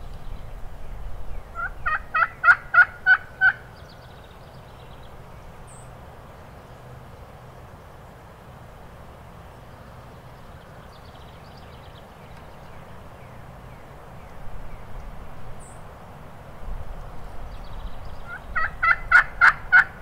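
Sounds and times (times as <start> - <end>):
wind gusts on microphone: 0.0 - 3.1, 13.8 - 20.0
distant songbird chirps: 0.0 - 16.0, 16.9 - 20.0
outdoor air hiss: 0.0 - 20.0.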